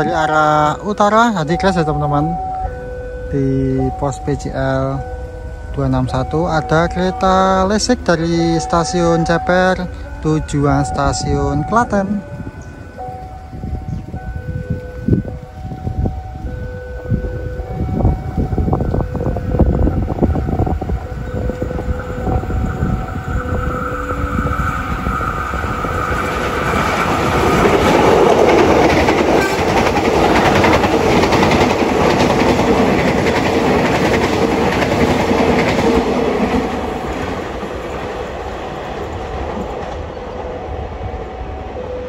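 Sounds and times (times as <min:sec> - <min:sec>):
electric train passing: 0:00.0 - 0:42.0
wheels clicking over rails: 0:13.0 - 0:40.6.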